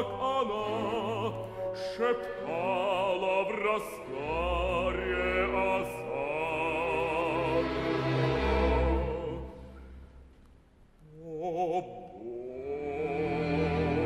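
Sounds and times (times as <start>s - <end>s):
baritone singing opera: 0.0s - 9.7s, 11.0s - 14.0s
orchestra playing: 0.0s - 9.9s, 13.0s - 14.0s.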